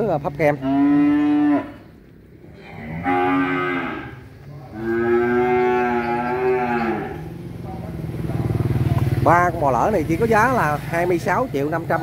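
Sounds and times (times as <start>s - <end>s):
cattle mooing: 0.5s - 7.3s.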